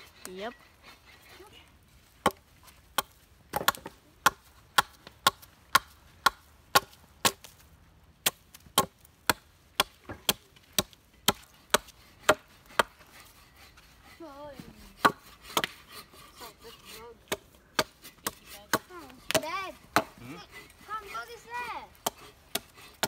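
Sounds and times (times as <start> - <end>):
blade chopping wood: 2.2 - 7.6, 8.2 - 13.1, 15.0 - 16.0, 16.9 - 23.0.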